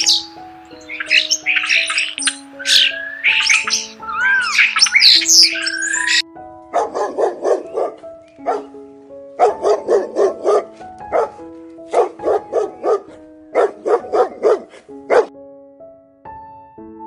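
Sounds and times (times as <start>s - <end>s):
soft keyboard music: 0.0s - 17.0s
dog barking: 6.7s - 8.8s, 9.4s - 15.3s.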